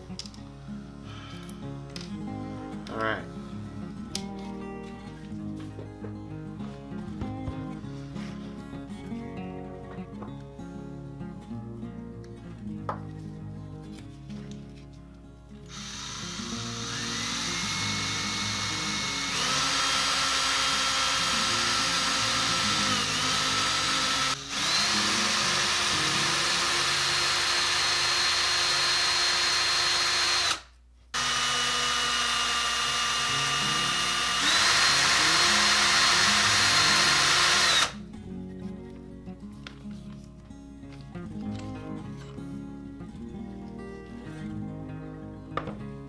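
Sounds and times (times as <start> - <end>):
background music: 0.0 - 30.6, 31.3 - 46.0
cordless drill whining: 15.7 - 38.0.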